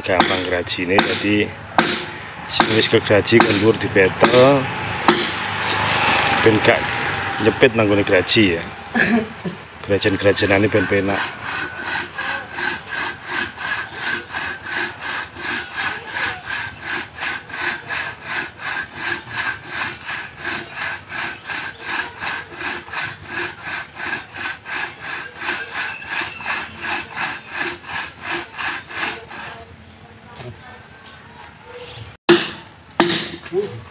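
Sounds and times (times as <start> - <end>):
hand saw cutting wood: 0.1 - 8.6, 10.0 - 29.7.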